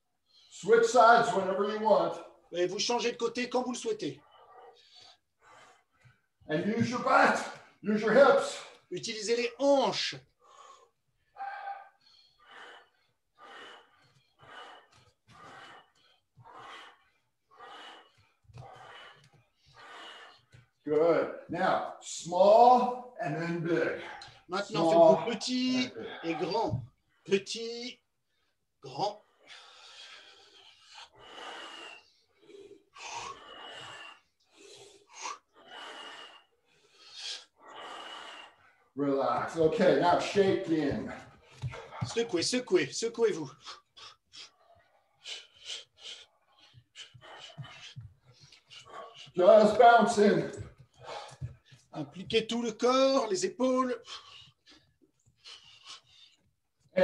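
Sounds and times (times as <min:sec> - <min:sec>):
man breathing hard: 0:04.2 - 0:07.8, 0:10.2 - 0:20.8, 0:28.9 - 0:42.4, 0:43.3 - 0:52.3, 0:53.9 - 0:56.5.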